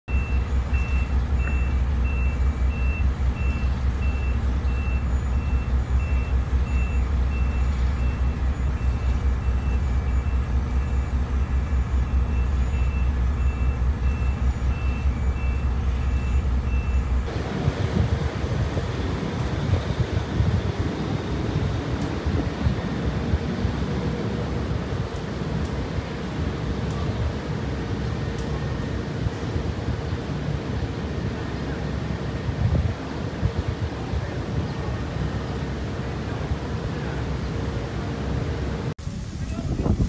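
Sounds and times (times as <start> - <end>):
reversing alarm beeping: 0.1 - 17.3
wind buffeting the microphone: 17.3 - 27.5, 32.4 - 35.0, 39.0 - 40.0.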